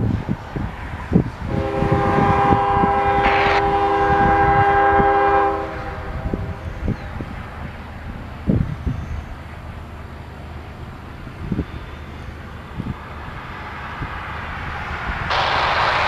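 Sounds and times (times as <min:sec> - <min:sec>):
locomotive air horn: 0:01.5 - 0:06.6, 0:15.3 - 0:16.0
low rumble: 0:14.4 - 0:16.0.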